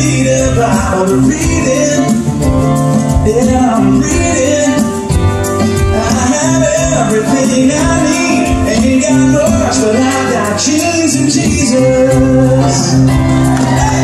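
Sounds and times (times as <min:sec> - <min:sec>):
strummed acoustic guitars: 0:00.0 - 0:14.0
men singing country song: 0:06.0 - 0:14.0.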